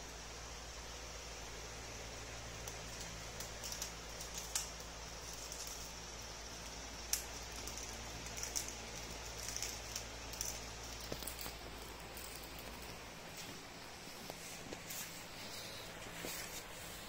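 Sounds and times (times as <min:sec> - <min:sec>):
low steady hum: 0:00.0 - 0:17.0
plastic wrapping crinkling: 0:02.6 - 0:17.0.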